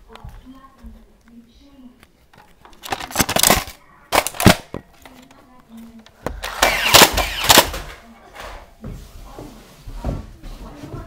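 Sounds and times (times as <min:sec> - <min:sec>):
toy blaster firing rapid clacks: 0:06.4 - 0:07.9.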